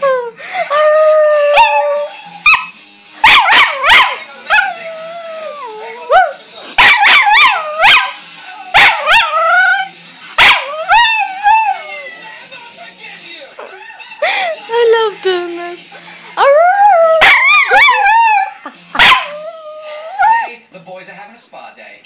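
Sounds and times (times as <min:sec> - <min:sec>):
small dog howling: 0:01.0 - 0:02.1, 0:10.5 - 0:12.1, 0:16.4 - 0:20.5
dog yipping: 0:01.5 - 0:04.8, 0:06.1 - 0:11.8, 0:17.2 - 0:20.5.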